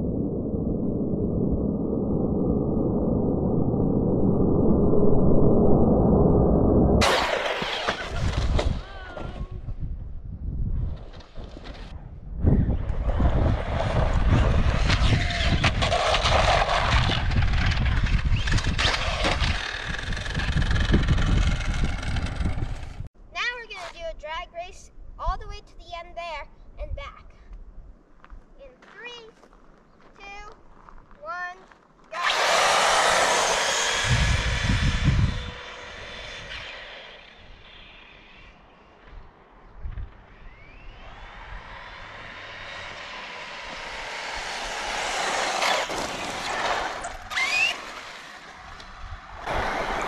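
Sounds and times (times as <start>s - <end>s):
rc cars driving on asphalt: 7.0s - 9.8s, 10.9s - 23.1s, 32.1s - 50.0s
electric motors whining: 14.8s - 22.9s, 32.2s - 39.1s, 40.0s - 50.0s.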